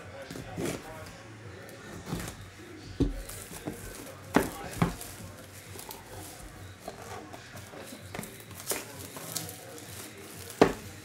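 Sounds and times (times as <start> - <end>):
plastic wrap crinkling: 3.0 - 11.0.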